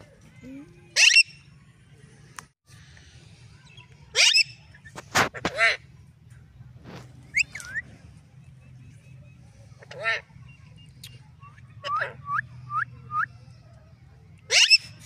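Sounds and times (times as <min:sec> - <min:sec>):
parakeet calling and squawking: 0:00.9 - 0:01.5, 0:04.1 - 0:04.8, 0:14.5 - 0:15.0.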